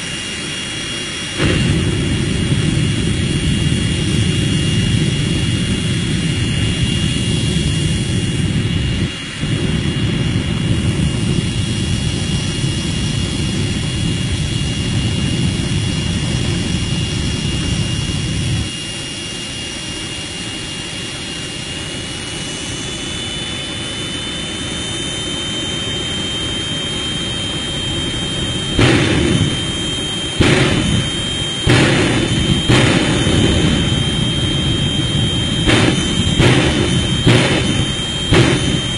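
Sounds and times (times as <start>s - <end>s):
jet engine whine: 0.0s - 38.9s
low jet rumble: 0.0s - 38.9s
loud bangs: 1.3s - 4.8s, 28.7s - 38.9s.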